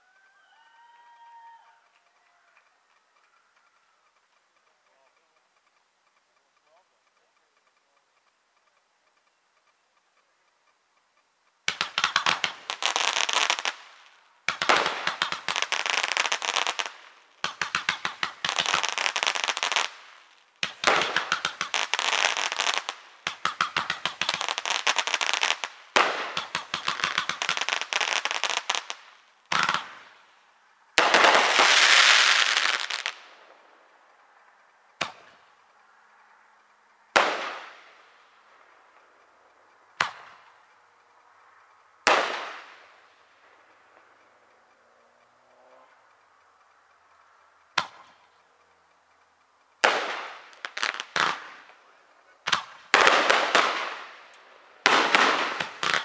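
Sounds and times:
fireworks crackling: 1.4 - 56.0
firework bangs: 11.6 - 34.0, 35.0 - 35.8, 37.1 - 39.1, 39.9 - 40.9, 42.0 - 44.2, 49.8 - 56.0.

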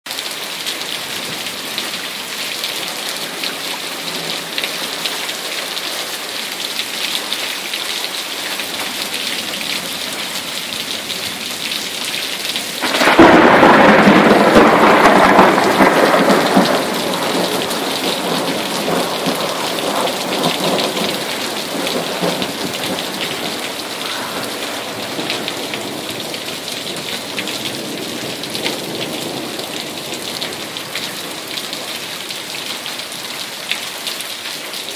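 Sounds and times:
steady rain: 0.1 - 34.9
thunderclap rumbling: 12.8 - 32.0.

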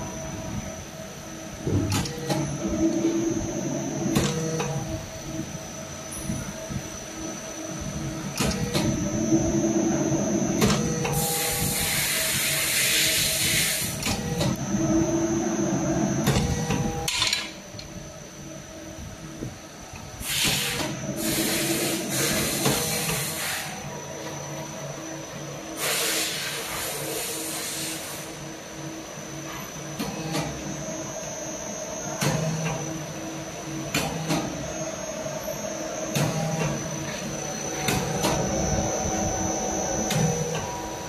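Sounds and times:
motor hum: 0.0 - 25.8, 28.4 - 41.0
thread rolling machine running: 0.0 - 41.0.

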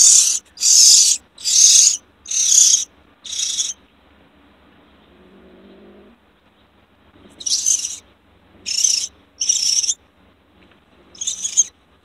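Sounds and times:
bird distress screeches: 0.0 - 3.8, 7.4 - 8.0, 8.7 - 10.0, 11.2 - 11.7.

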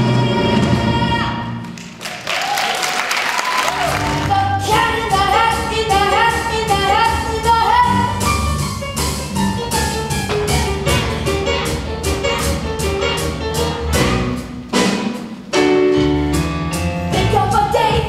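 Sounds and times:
audience applause: 1.6 - 4.4
pit band playing a quick tune: 3.4 - 17.8.

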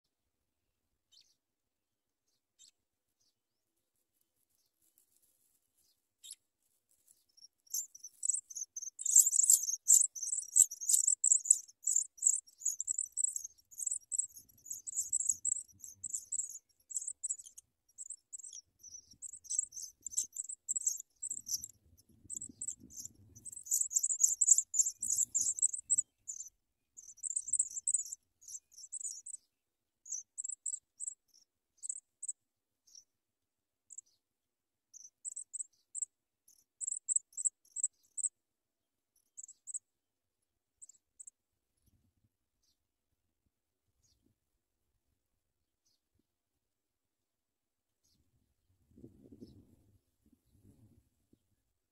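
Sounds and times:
nestlings begging calls: 7.7 - 29.4.

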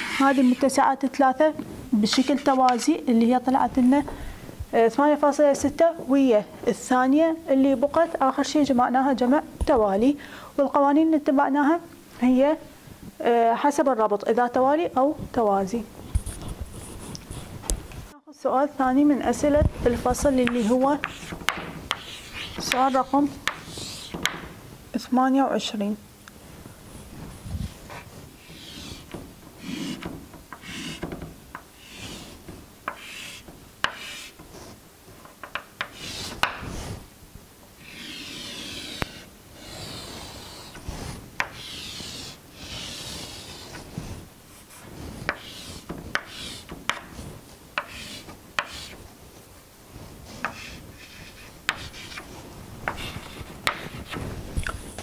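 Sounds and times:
chalk scraping on chalkboard: 0.0 - 0.8, 2.1 - 2.9, 20.1 - 24.4, 27.0 - 31.2, 31.8 - 34.8, 35.8 - 37.0, 37.8 - 49.0, 50.2 - 54.2
chalk tapping on chalkboard: 2.1 - 2.9, 20.3 - 24.5, 28.4 - 34.7, 35.4 - 36.9, 38.0 - 43.8, 45.2 - 49.0, 50.4 - 54.2.

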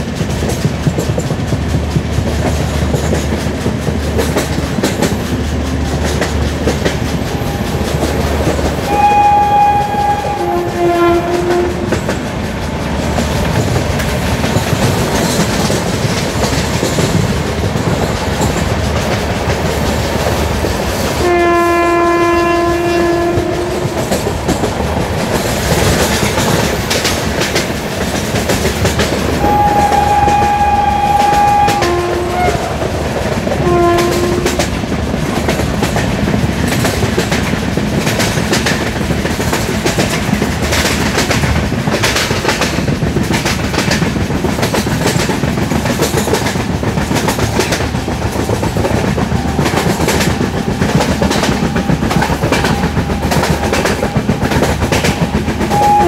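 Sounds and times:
train coaches rumbling and clattering: 0.0 - 56.0
two-tone train horn: 8.8 - 12.1, 21.2 - 24.2, 29.4 - 33.0, 33.6 - 34.7, 49.3 - 56.0.

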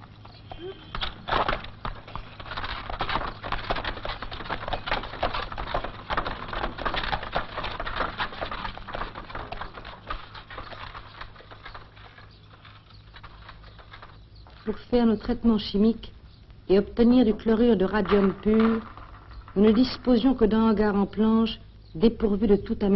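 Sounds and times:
horse hooves clip-clopping: 0.0 - 21.0
rapid clatter of knocks: 0.9 - 14.8, 17.3 - 20.2.

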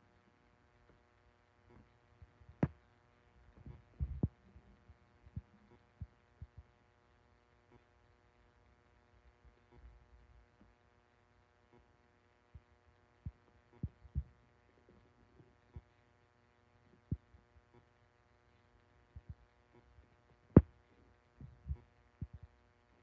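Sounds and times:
faint electrical hum: 0.0 - 23.0
dull low thumps: 3.6 - 4.4, 21.4 - 22.4.

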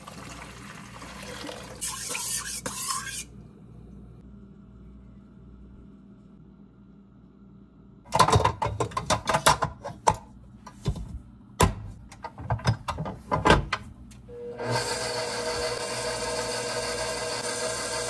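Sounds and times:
mixer motor whining: 14.3 - 18.0.

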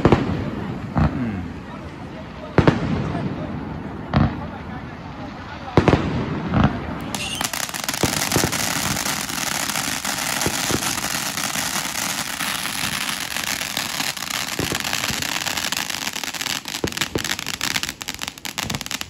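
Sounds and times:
firework crackling and hissing: 0.0 - 19.0
firework pops: 5.8 - 19.0.

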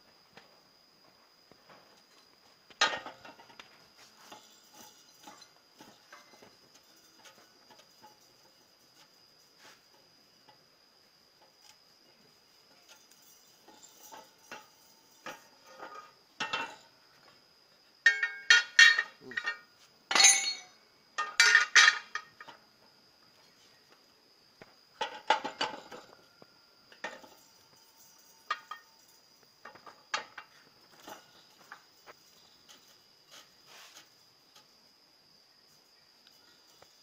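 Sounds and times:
steel parts clanking: 2.8 - 8.4, 18.0 - 22.5.

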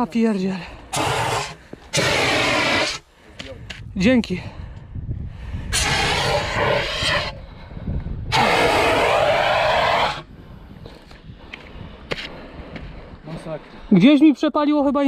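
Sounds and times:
fire extinguisher hissing bursts: 0.9 - 3.0.

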